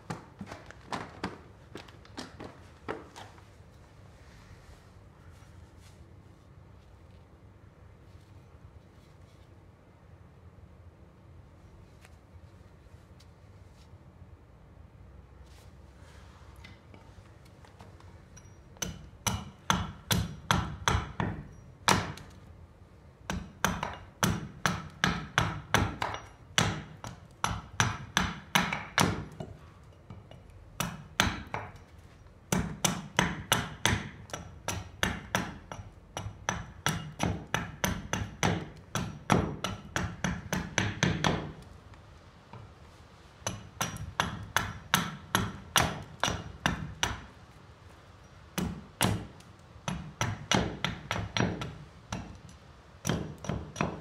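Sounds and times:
axe chopping wood: 18.8 - 22.3, 23.3 - 29.4, 32.5 - 41.6, 48.6 - 52.4.

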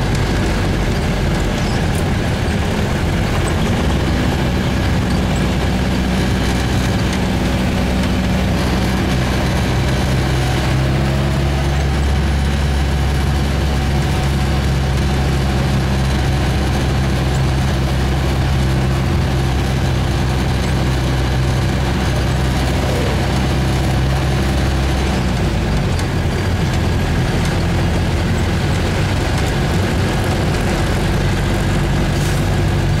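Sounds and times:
road noise: 0.0 - 33.0
vehicle engine running: 0.0 - 33.0.

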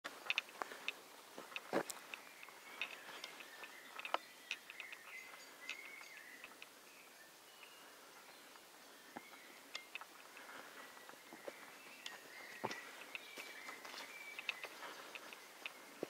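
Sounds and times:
footsteps on dry leaves: 0.1 - 6.5, 10.0 - 16.0
faint bird calls: 0.1 - 16.0.

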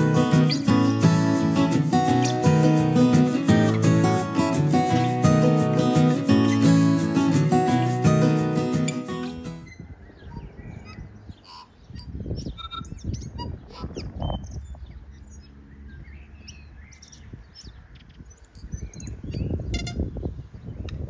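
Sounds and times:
bird singing: 8.8 - 21.0
wind rumble on microphone: 9.6 - 21.0.

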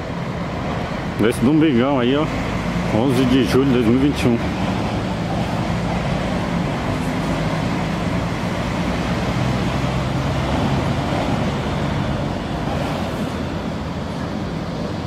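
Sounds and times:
traffic engine hum: 0.0 - 15.0.

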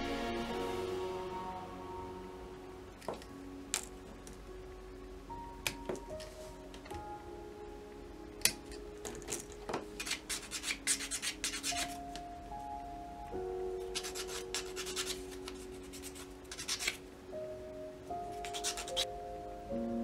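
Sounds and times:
sanding stick scraping: 10.0 - 12.0, 14.0 - 17.0, 18.4 - 19.1.

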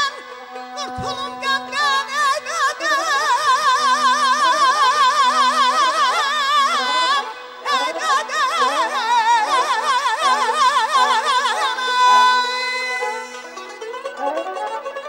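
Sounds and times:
man singing with warbling trill: 0.0 - 13.3.

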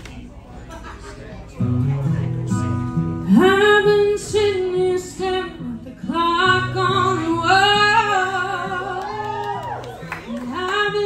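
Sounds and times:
woman singing a ballad: 3.3 - 9.7, 10.4 - 11.0.

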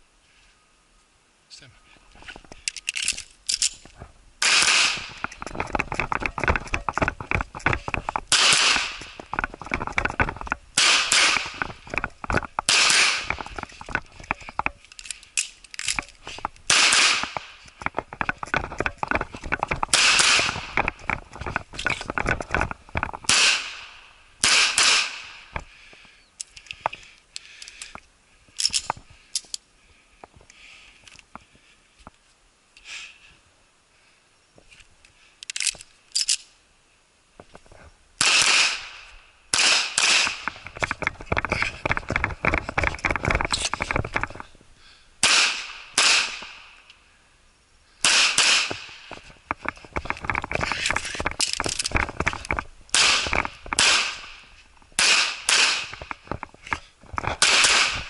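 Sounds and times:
clicks and handling noise: 2.1 - 32.3, 34.6 - 36.5, 39.6 - 44.6, 48.4 - 58.0
pistol shots: 4.4 - 5.2, 8.3 - 9.1, 10.8 - 11.6, 12.7 - 13.3, 16.7 - 17.5, 19.9 - 20.6, 23.3 - 25.4, 38.2 - 40.5, 45.2 - 46.6, 48.0 - 48.9, 52.9 - 54.3, 55.0 - 56.0, 57.4 - 58.0.

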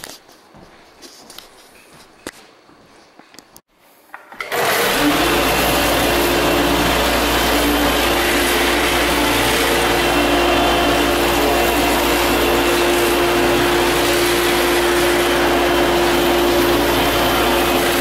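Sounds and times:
floor sander humming: 4.4 - 18.0.

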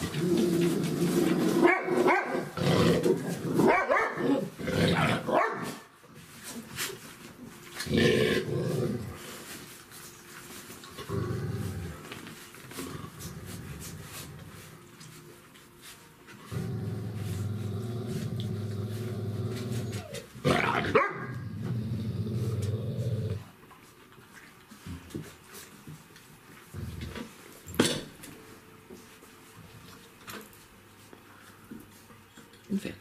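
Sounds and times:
dog growling low: 0.0 - 1.6, 7.8 - 9.3, 11.0 - 12.1, 12.7 - 14.6, 16.4 - 23.5
dog barking: 1.6 - 2.5, 3.7 - 4.4, 5.3 - 5.8, 20.9 - 21.3.

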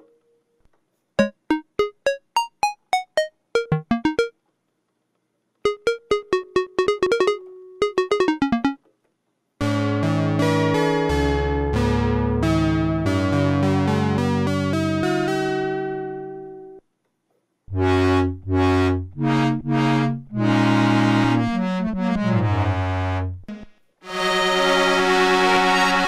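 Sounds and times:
synthesizer chord stabs: 1.2 - 4.3, 5.7 - 8.8, 17.7 - 23.4
synthesizer chords and melody: 1.2 - 4.4, 5.6 - 8.9, 9.6 - 16.2, 17.7 - 26.0.

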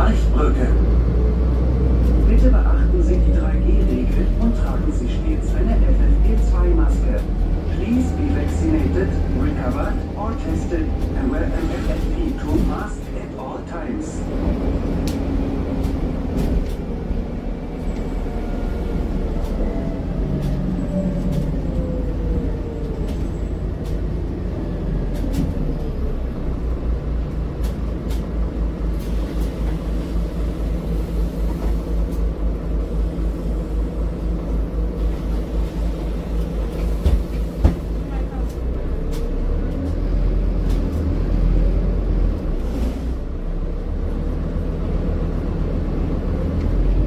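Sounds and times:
bus engine rumble: 0.0 - 47.0.

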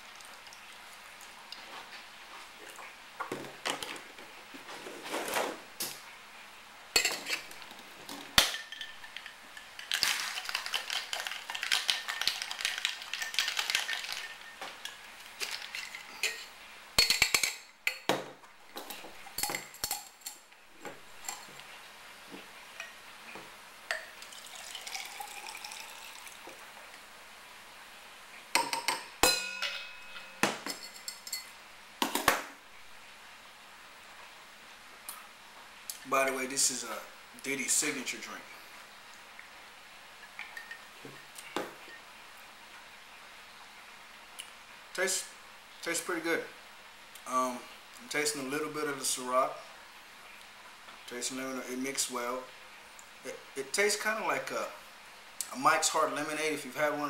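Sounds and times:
liquid pouring over ice: 8.6 - 16.3, 24.2 - 26.6
ice rattling in a shaker: 8.6 - 16.4, 24.2 - 26.4
drink poured from shaker: 9.8 - 14.4.

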